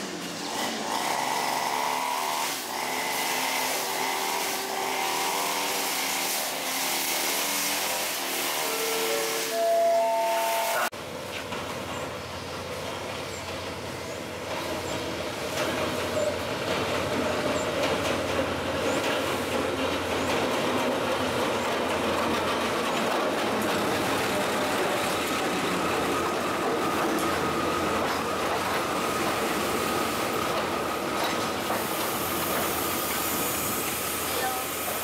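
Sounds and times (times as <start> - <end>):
carriages rolling on rails: 0.0 - 35.0
diesel locomotive passing: 0.0 - 35.0
high-pitched squeal: 0.4 - 10.9.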